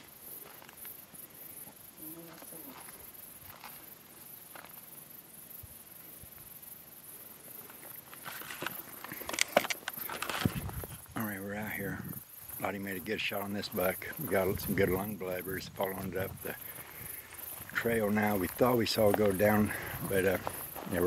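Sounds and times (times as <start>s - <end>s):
insects chirping: 0.0s - 21.0s
footsteps through grass and brush: 2.7s - 4.8s, 16.6s - 21.0s.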